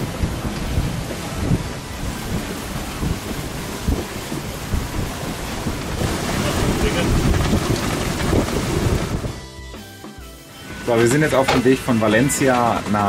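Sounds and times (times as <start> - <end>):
wind buffeting microphone: 0.0 - 9.4
water rushing along hull: 0.0 - 13.0.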